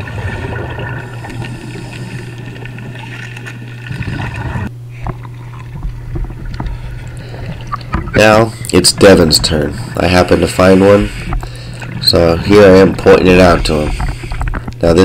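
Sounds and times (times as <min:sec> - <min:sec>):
underwater low hum: 0:00.0 - 0:15.0
clicks and crackles: 0:13.9 - 0:14.8.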